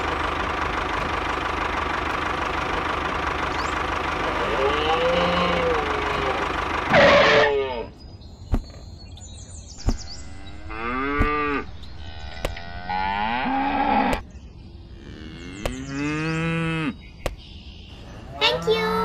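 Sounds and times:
cows mooing: 0:04.2 - 0:07.9, 0:10.1 - 0:14.2, 0:14.9 - 0:17.0, 0:18.2 - 0:19.0.

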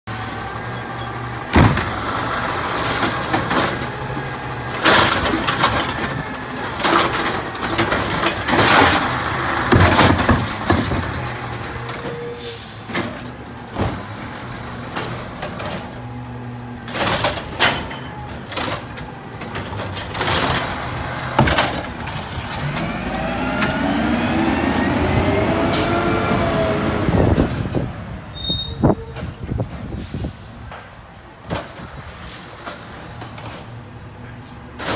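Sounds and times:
garbage truck engine running: 0:00.1 - 0:12.0, 0:12.8 - 0:28.2
loud bangs from cart and arm: 0:01.5 - 0:02.0
engine revving up: 0:22.2 - 0:27.6.

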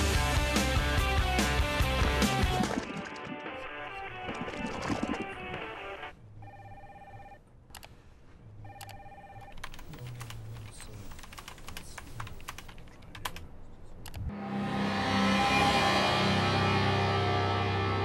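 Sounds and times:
telephone ringing: 0:06.0 - 0:07.4, 0:08.7 - 0:09.7
typing on a computer keyboard: 0:08.8 - 0:13.5.

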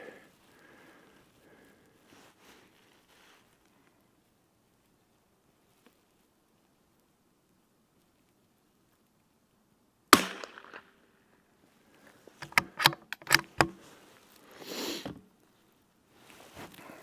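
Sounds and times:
rifle shot: 0:10.1 - 0:11.0
rifle bolt clicking: 0:12.4 - 0:13.8.

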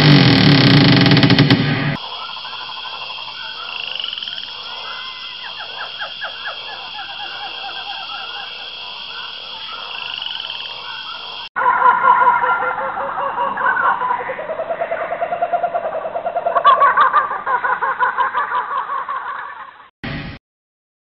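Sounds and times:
high drone of insects: 0:02.0 - 0:11.5
frogs croaking: 0:02.0 - 0:19.8.

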